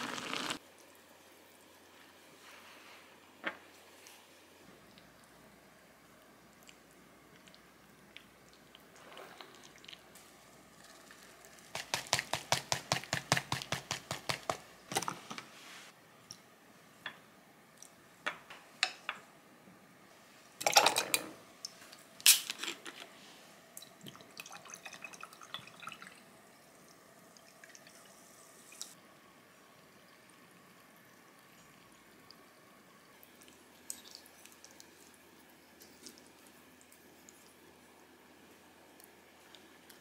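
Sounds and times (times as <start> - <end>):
water pouring into glass: 24.3 - 26.2.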